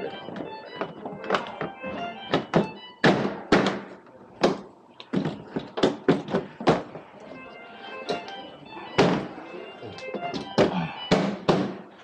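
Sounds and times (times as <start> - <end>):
background music: 0.0 - 3.9, 7.0 - 12.0.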